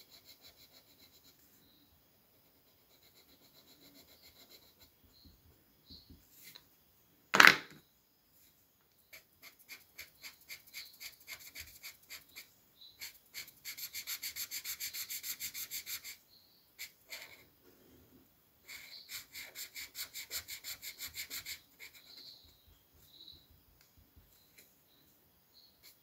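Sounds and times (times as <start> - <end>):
marker rubbing on paper: 2.4 - 4.9, 9.1 - 16.2, 16.8 - 17.4, 18.6 - 22.4.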